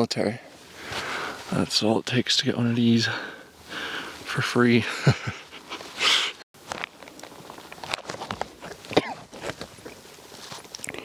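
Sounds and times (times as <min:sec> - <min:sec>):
breathy burst: 0:03.1 - 0:04.2
clothing rustling: 0:05.4 - 0:10.8
steps crunching on loose ground: 0:05.7 - 0:11.0.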